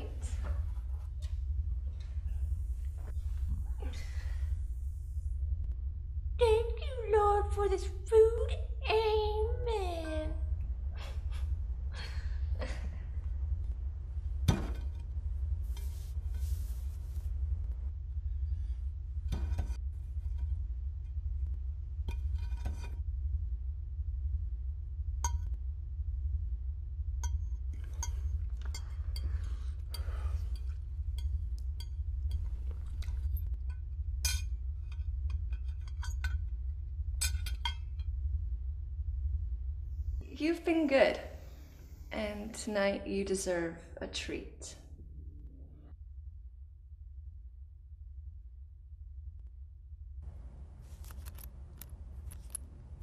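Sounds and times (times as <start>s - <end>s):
low room hum: 0.0s - 53.0s
soft rustle: 15.5s - 17.6s.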